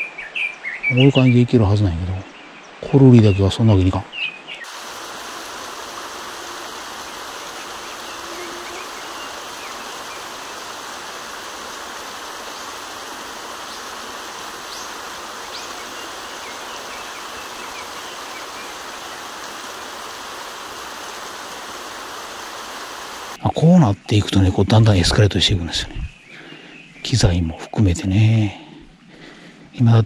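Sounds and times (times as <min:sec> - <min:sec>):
mountain stream rushing: 0:04.6 - 0:23.4
faint bird chirps: 0:07.1 - 0:21.5.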